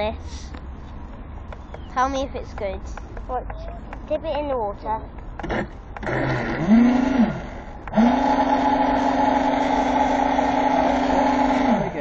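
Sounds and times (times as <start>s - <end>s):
electric fan motor spinning: 5.4s - 12.0s.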